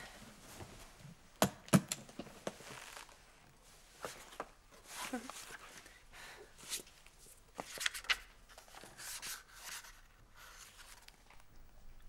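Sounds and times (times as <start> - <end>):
book pages rustling: 2.4 - 3.2, 6.6 - 11.5.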